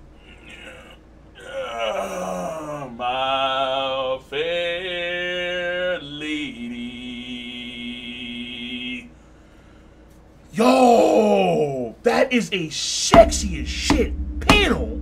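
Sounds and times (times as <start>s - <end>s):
man singing wordless held notes: 3.1s - 9.1s.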